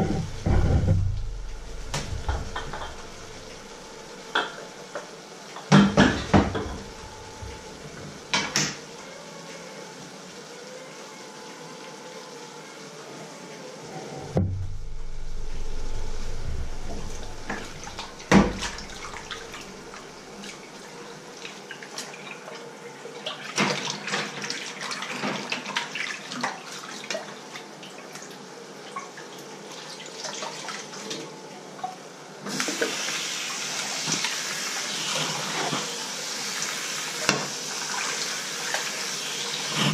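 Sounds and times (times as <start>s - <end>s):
tap running: 0.0s - 5.0s, 14.4s - 20.2s
dishes clinking and knocking: 2.0s - 3.5s, 5.7s - 7.2s.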